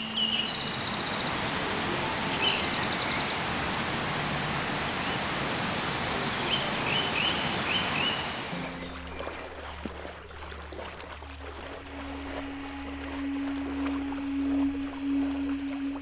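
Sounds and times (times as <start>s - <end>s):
waterfall rushing: 0.0s - 9.6s, 11.8s - 16.0s
songbirds singing: 0.0s - 12.0s.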